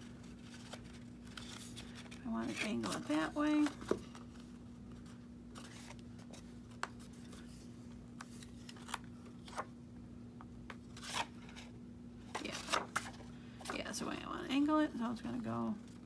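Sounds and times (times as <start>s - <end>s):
paper tags being handled: 0.0s - 7.6s
steady low hum: 0.0s - 16.0s.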